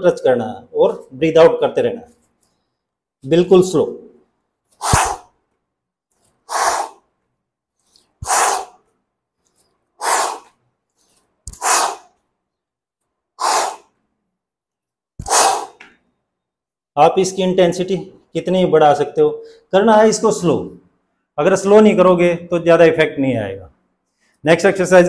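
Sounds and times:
man exhaling hard: 4.8 - 5.3, 6.5 - 7.0, 8.2 - 8.8, 10.0 - 10.6, 11.5 - 12.2, 13.4 - 13.9, 15.2 - 15.8.

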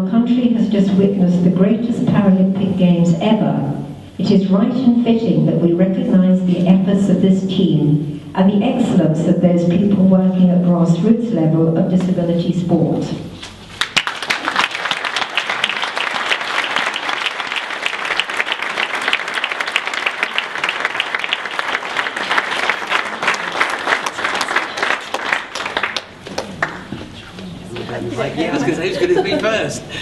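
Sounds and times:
audience applauding: 13.8 - 28.0.

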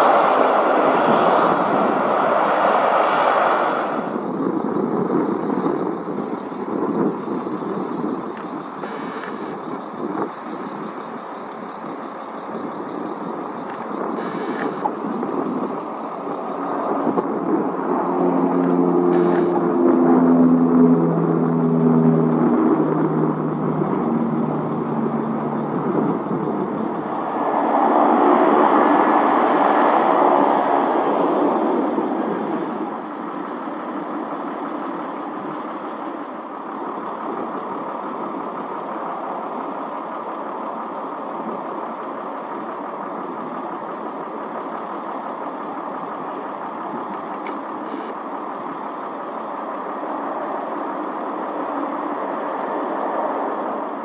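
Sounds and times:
aircraft engines running: 0.0 - 54.0.

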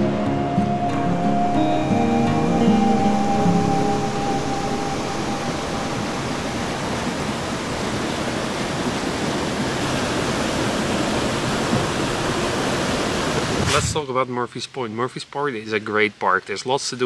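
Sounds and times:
water rushing over rocks: 3.7 - 14.1.

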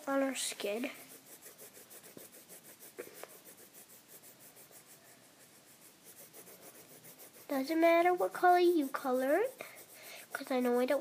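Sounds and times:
pencil scratching on paper: 0.0 - 11.0.

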